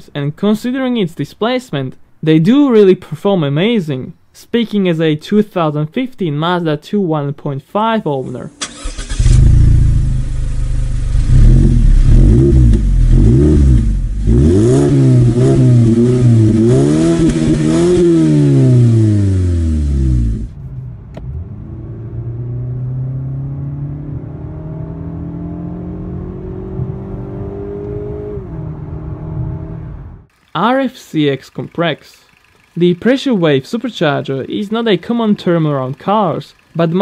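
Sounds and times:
car engine revving: 0:08.6 - 0:30.5
car accelerating heard from cabin: 0:08.8 - 0:30.3.

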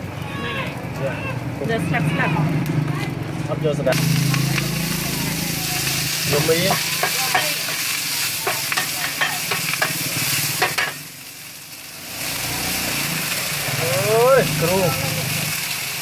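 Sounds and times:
vegetables sizzling in hot oil: 0:03.7 - 0:16.0.

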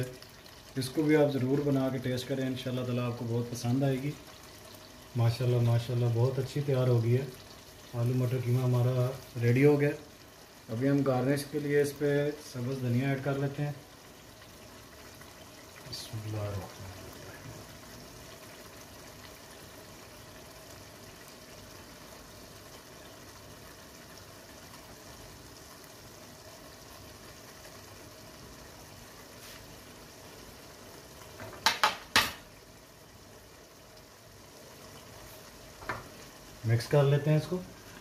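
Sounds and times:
pot simmering with low hiss: 0:00.0 - 0:38.0
sharp knocks: 0:31.4 - 0:32.4.

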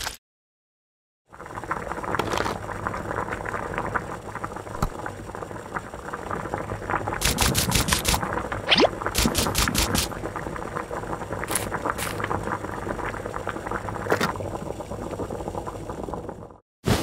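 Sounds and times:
pot bubbling and simmering: 0:01.3 - 0:16.6.

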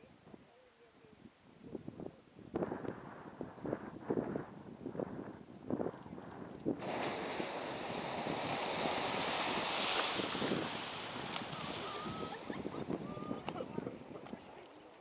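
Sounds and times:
spray raining on microphone: 0:06.8 - 0:14.2
geyser erupting with rushing hiss: 0:06.8 - 0:14.4.

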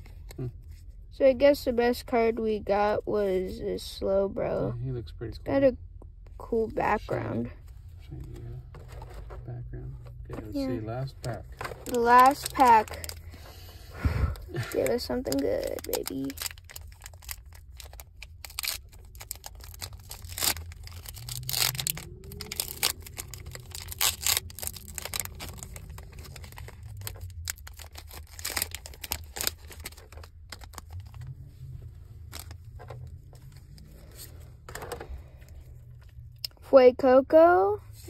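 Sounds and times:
foil wrapper crackling and crinkling: 0:11.2 - 0:31.3, 0:32.2 - 0:33.9.

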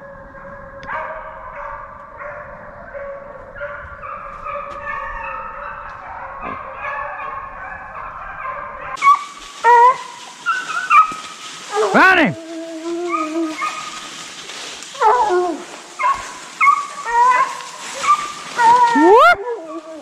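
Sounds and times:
hounds baying: 0:00.2 - 0:14.1, 0:14.8 - 0:20.0
hound sharp cries: 0:08.4 - 0:14.0, 0:15.0 - 0:19.8.

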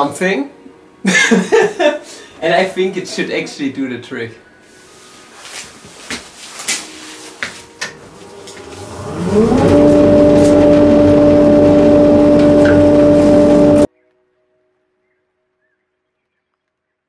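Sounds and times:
dust extractor motor whine: 0:07.8 - 0:13.9.

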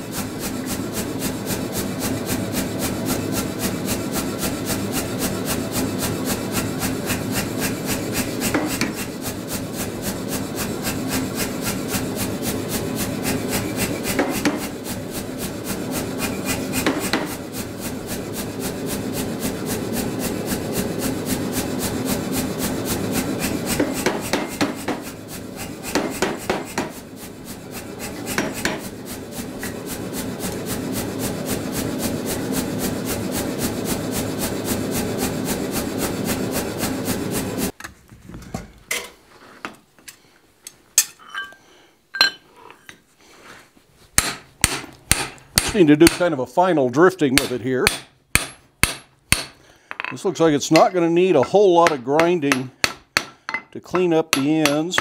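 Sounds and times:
hammer striking hot steel: 0:00.3 - 0:09.4, 0:10.1 - 0:19.6, 0:23.3 - 0:31.1, 0:44.2 - 0:46.4, 0:47.4 - 0:55.0.

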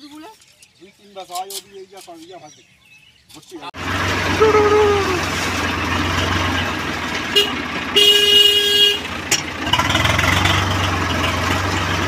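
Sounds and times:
tractor diesel engine running: 0:03.8 - 0:12.0
horn honking: 0:04.2 - 0:09.4.

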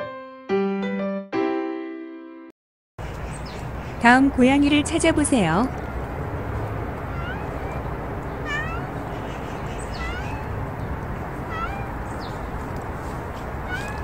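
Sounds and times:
cat meowing: 0:07.0 - 0:12.5, 0:13.6 - 0:14.0.

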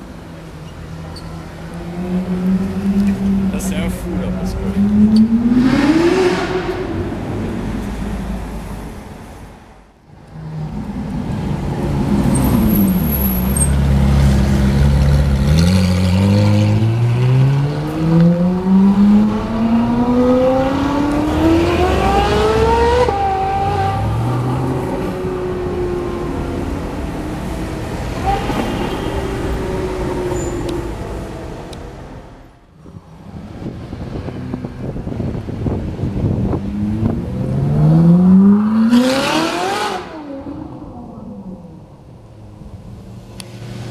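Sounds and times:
sports car engine revving: 0:01.7 - 0:08.8, 0:36.2 - 0:41.3.

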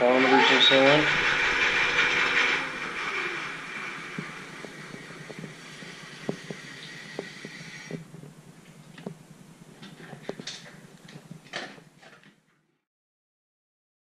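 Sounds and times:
wheel spinning hiss: 0:00.0 - 0:08.2
ticks: 0:04.1 - 0:09.2.

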